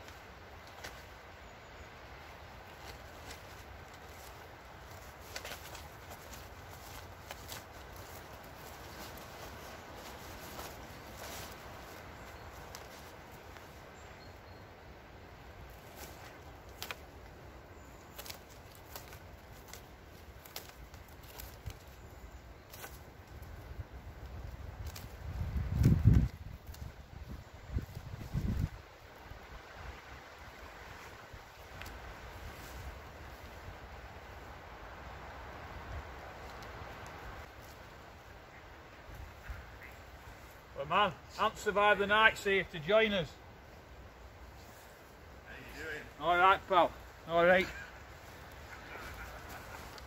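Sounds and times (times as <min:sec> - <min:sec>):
cord rustling: 0:02.6 - 0:13.9, 0:15.7 - 0:23.6.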